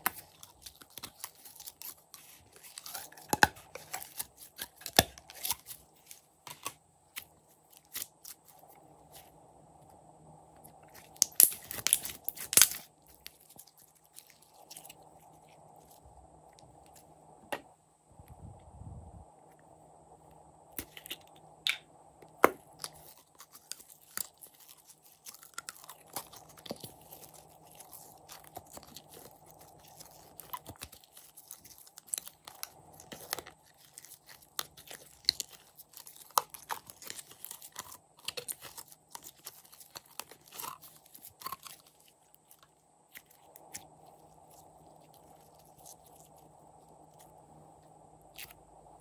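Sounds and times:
slime popping and crackling: 10.9 - 15.0, 22.3 - 46.3.

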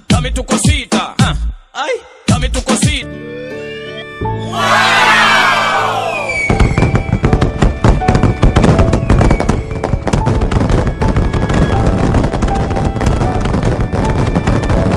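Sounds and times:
background music: 0.0 - 14.9
falling firework whistles: 5.9 - 14.9
firework crackling and popping: 6.4 - 14.9.

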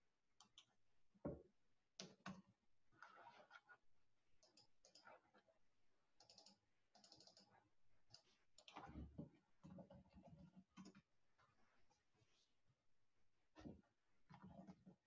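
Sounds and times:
faint keyboard typing: 4.4 - 5.5, 6.1 - 11.1.

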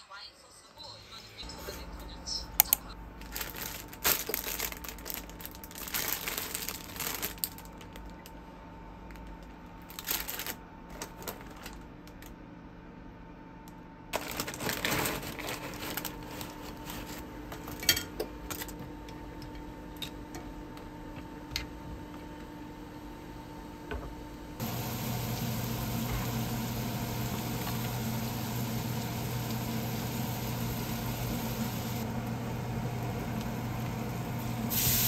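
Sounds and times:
rustling and crinkling: 3.2 - 8.4, 9.1 - 12.3, 14.2 - 17.8
faint steady hum: 15.4 - 35.0.

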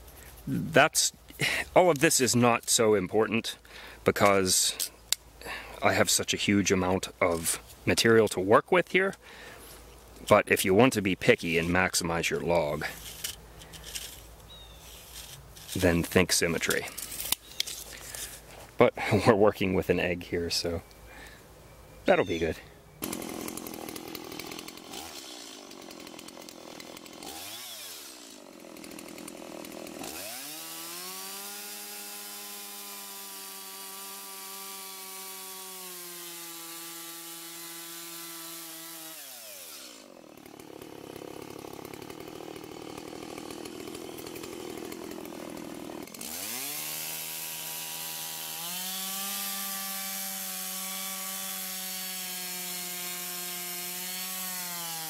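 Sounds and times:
chainsaw cutting log: 10.2 - 18.4, 23.0 - 55.0.

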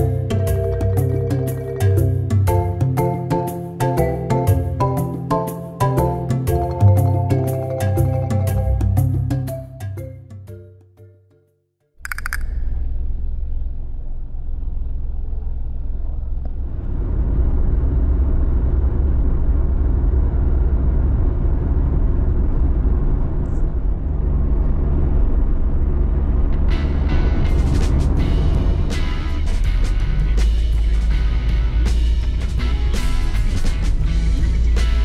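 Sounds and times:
short sharp click: 12.0 - 12.6
car engine and road noise: 12.0 - 35.0.

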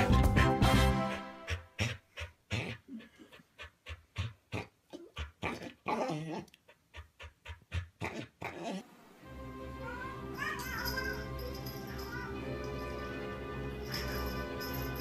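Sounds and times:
animal panting: 1.0 - 8.6.

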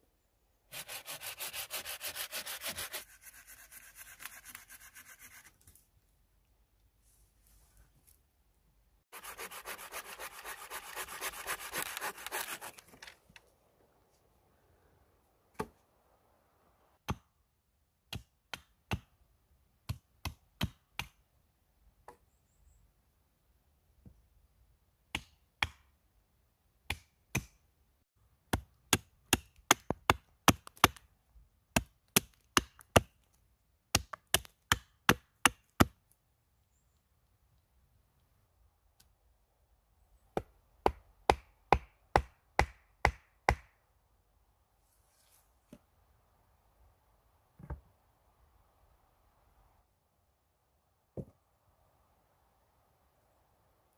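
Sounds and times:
rasping scraping on wood: 0.7 - 5.4, 9.2 - 12.8
hatchet chopping wood: 17.0 - 17.3, 18.1 - 19.2, 19.8 - 21.2, 25.1 - 25.9, 26.8 - 27.6, 28.4 - 31.1, 31.7 - 33.2, 33.9 - 36.0, 40.4 - 43.8.

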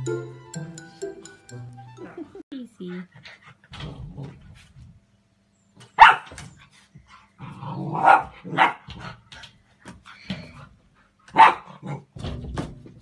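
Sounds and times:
puppy barking: 6.0 - 6.4, 7.9 - 8.9, 11.3 - 12.0.

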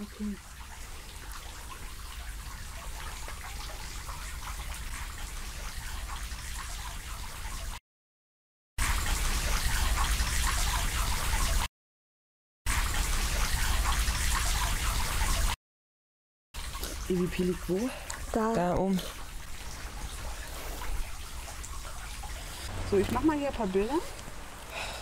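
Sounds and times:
light rain pattering: 16.6 - 25.0.

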